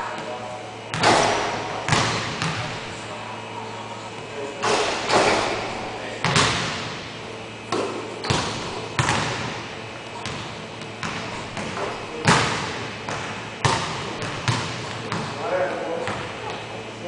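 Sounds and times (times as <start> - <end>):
basketball bouncing on hardwood: 1.9 - 2.7, 7.7 - 9.5.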